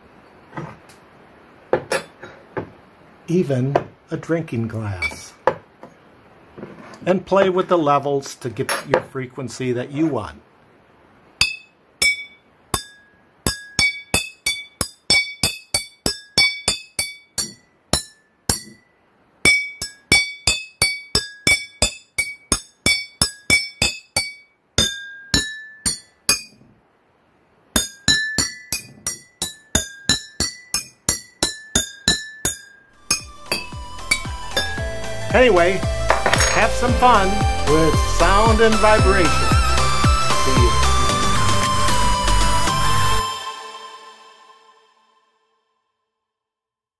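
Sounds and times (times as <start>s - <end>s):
spoon tapping water glasses: 36.1s - 36.8s.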